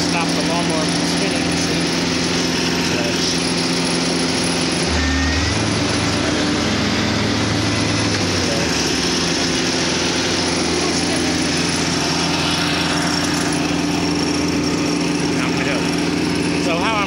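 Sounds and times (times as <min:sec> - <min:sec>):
tractor engine running: 0:00.0 - 0:17.0.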